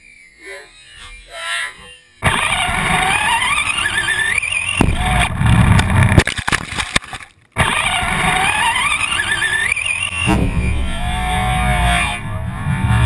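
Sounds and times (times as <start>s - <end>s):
rc car motor whining: 0.0s - 6.2s, 7.6s - 13.0s
ride rumble: 2.5s - 6.2s, 7.6s - 13.0s.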